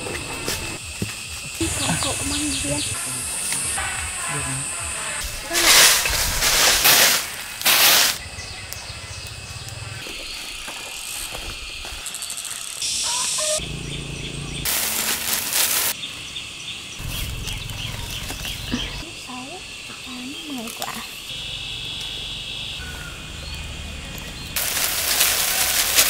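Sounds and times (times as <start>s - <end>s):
loud bursts of rustling: 5.2s - 8.2s, 14.6s - 16.0s, 24.6s - 26.0s.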